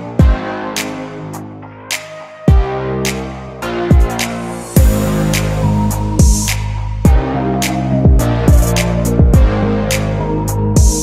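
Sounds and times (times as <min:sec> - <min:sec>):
electronic music: 0:00.0 - 0:11.0
deep kick drum: 0:00.2 - 0:00.4, 0:02.5 - 0:02.7, 0:03.9 - 0:04.2, 0:04.8 - 0:05.1, 0:06.2 - 0:07.3, 0:08.1 - 0:09.6, 0:10.8 - 0:11.0.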